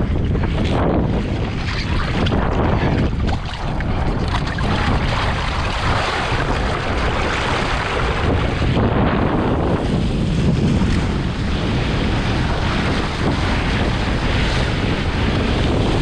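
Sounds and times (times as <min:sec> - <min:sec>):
wind buffeting microphone: 0:00.0 - 0:16.0
water splashing against board: 0:00.2 - 0:08.7.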